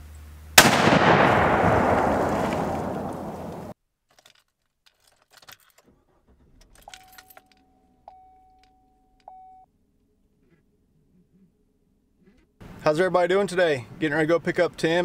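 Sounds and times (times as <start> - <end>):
loud boom: 0.6 - 3.8
keys jingling: 6.7 - 7.6.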